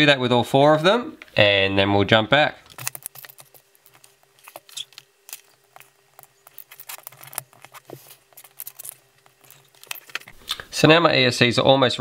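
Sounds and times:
faint steady hum: 0.0 - 12.0
electronics handling clicks and rattles: 2.6 - 10.6.

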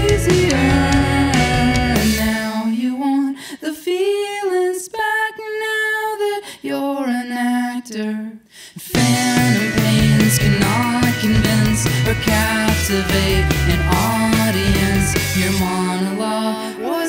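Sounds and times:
rock band playing: 0.0 - 2.4, 8.9 - 17.0
man singing: 0.0 - 2.8, 8.9 - 17.0.

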